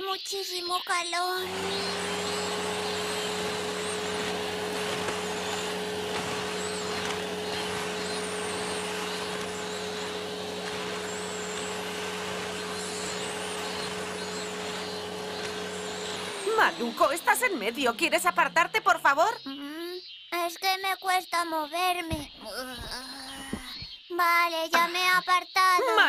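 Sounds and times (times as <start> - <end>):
vacuum cleaner motor whine: 1.4 - 19.3, 25.8 - 26.0.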